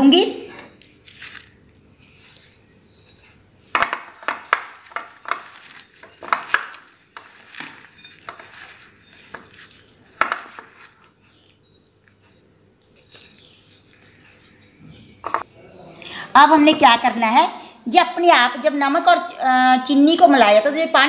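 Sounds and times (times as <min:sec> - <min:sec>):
salt and spice mix rustling: 0:00.8 - 0:15.4
glass clinking and knocking: 0:01.8 - 0:15.4.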